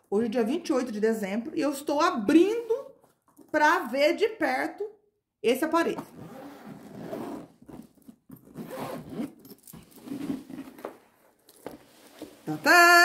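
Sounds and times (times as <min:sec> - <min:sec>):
zipper on fabric case pulled open: 0:06.0 - 0:10.9.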